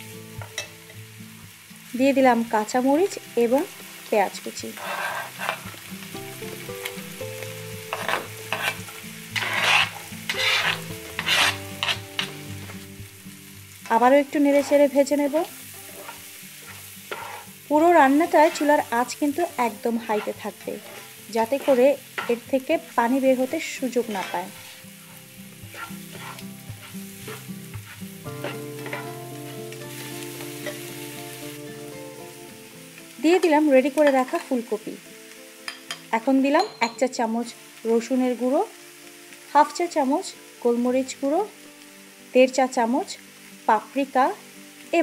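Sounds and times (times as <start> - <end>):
vegetables sizzling in oil: 0.0 - 45.0
spatula scraping a pan: 4.7 - 5.8, 7.9 - 12.4, 14.5 - 15.0, 15.6 - 30.9.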